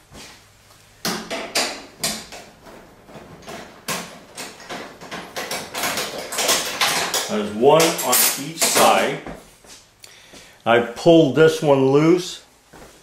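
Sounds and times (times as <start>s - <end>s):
knocking and rattling metal panel: 1.1s - 8.0s.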